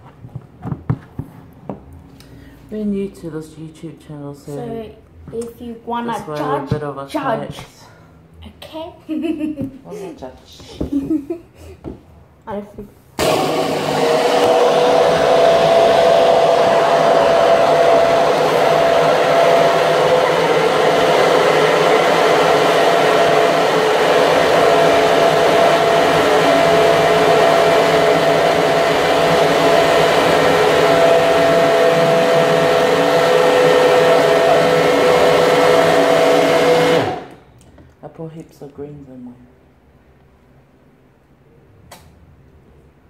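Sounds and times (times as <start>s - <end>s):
blender motor whining: 13.2s - 37.4s.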